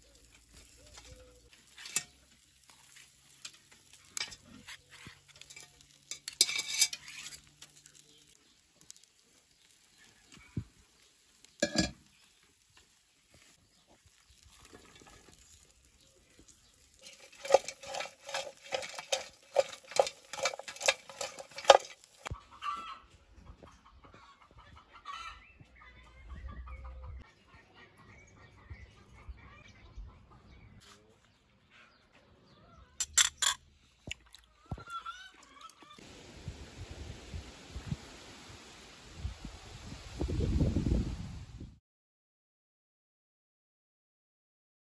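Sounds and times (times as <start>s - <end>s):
chicken clucking: 16.9s - 33.0s, 34.5s - 36.0s.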